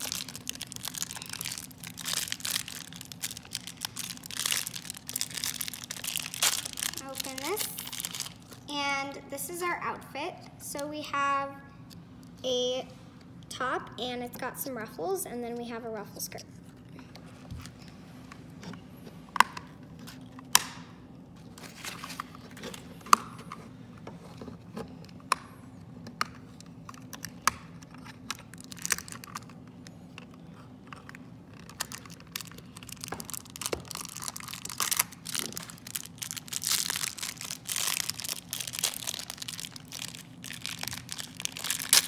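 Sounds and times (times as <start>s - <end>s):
plastic wrapper crinkling and tearing: 0.0s - 8.7s, 26.5s - 42.0s.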